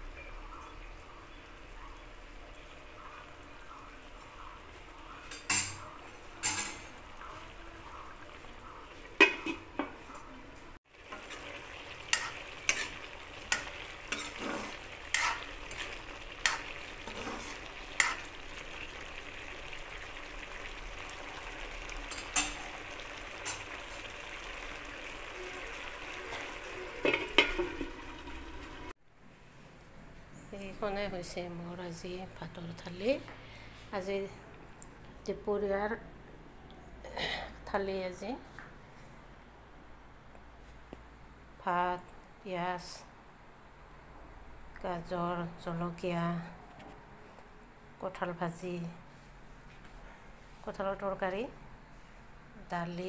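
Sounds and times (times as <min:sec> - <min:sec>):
spoon knocking and scraping pan: 0:09.2 - 0:10.1, 0:11.1 - 0:18.3, 0:26.3 - 0:28.1
curry sizzling in a wok: 0:10.8 - 0:29.0.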